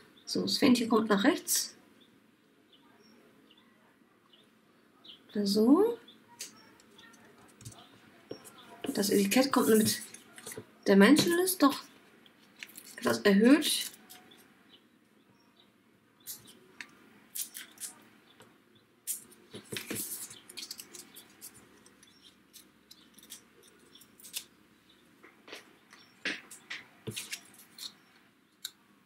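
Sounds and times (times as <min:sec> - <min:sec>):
paper crackling and rustling: 0:07.0 - 0:11.3, 0:12.3 - 0:14.5, 0:19.1 - 0:24.5, 0:26.4 - 0:28.1
adhesive pads being peeled: 0:12.2 - 0:13.1, 0:13.8 - 0:14.5, 0:16.3 - 0:18.0, 0:19.1 - 0:24.5, 0:25.5 - 0:28.7.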